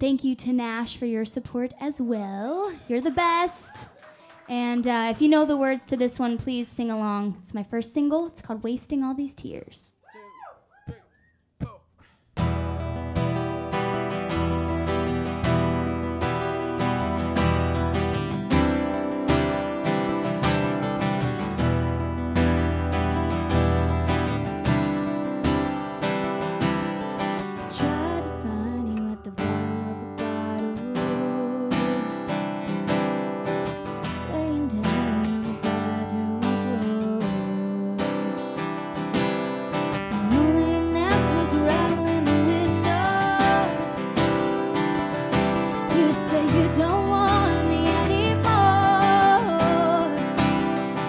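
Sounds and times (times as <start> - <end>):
woman singing: 4.5 - 7.4, 27.6 - 32.4, 34.3 - 38.6, 40.1 - 44.5, 45.7 - 50.7
acoustic guitars strumming: 12.4 - 51.0.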